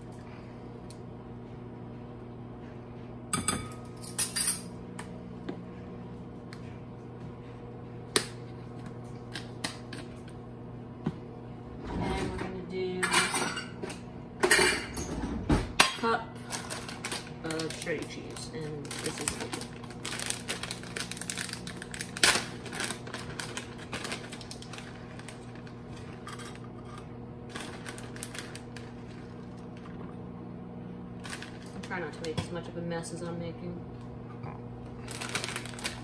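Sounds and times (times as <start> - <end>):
steady low hum: 0.0 - 36.0
plastic bag crinkling: 16.4 - 26.6, 27.5 - 30.0, 31.2 - 32.3, 35.0 - 36.0.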